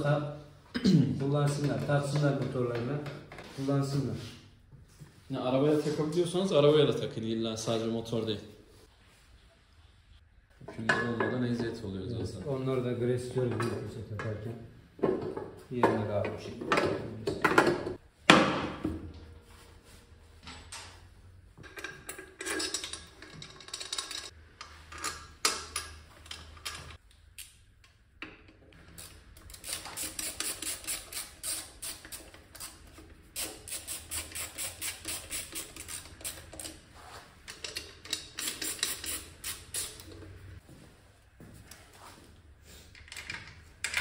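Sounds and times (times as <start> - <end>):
ratchet wrench clicking: 28.9 - 32.8, 33.4 - 36.8, 37.6 - 40.0.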